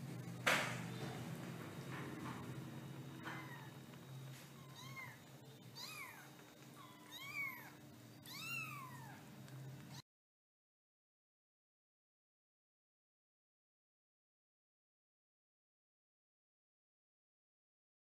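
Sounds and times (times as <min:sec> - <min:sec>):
kittens mewing: 0:04.5 - 0:09.3.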